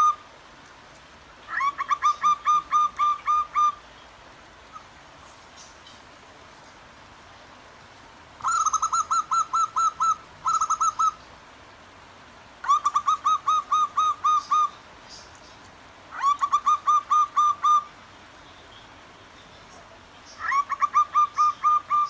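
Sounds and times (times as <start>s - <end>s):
faint stream rushing: 0.0s - 22.0s
doves cooing: 1.5s - 3.8s, 8.4s - 11.2s, 12.6s - 14.8s, 16.1s - 17.9s, 20.4s - 22.0s.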